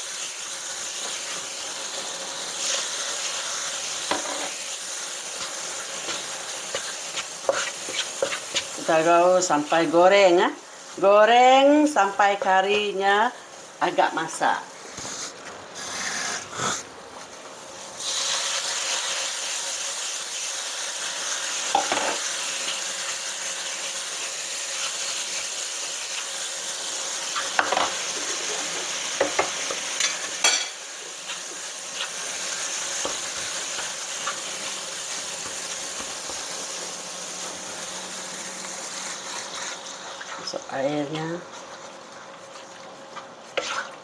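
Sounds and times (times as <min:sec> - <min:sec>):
spice paste sizzling in a pan: 0:00.0 - 0:14.5, 0:17.5 - 0:44.0
wooden spatula scraping a pan: 0:05.4 - 0:08.8, 0:39.3 - 0:44.0.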